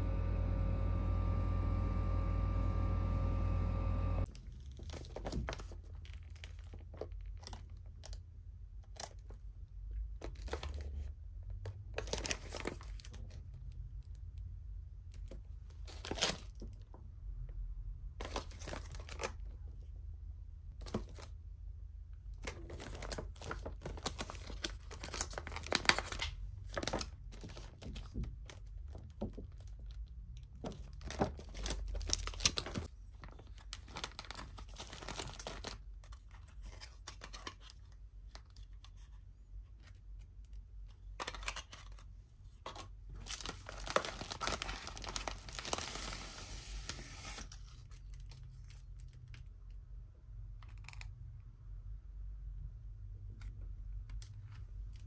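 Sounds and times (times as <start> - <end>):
plastic film wrap crinkling: 4.2 - 8.2, 22.4 - 38.6, 42.7 - 49.5.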